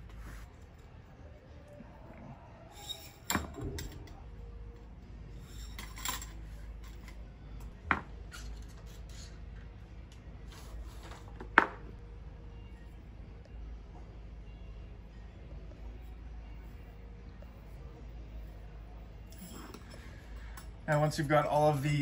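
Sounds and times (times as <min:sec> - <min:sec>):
metal tent poles clinking: 0:05.4 - 0:07.2.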